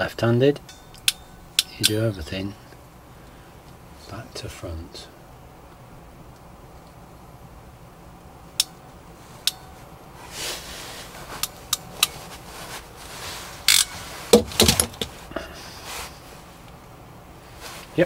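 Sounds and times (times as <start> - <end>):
tool handling knocks and rattles: 13.7 - 15.2.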